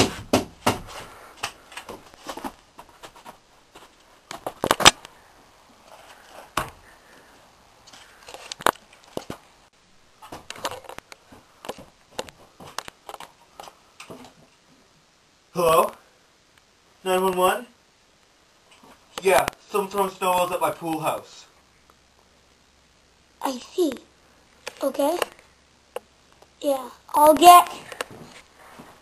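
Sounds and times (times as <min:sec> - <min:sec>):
rustling handling noises: 0:00.8 - 0:14.7.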